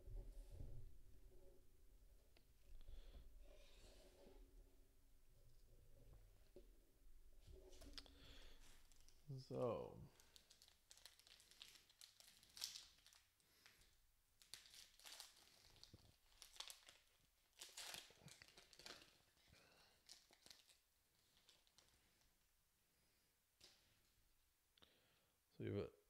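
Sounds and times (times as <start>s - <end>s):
foil wrapper crinkling: 10.1s - 22.2s.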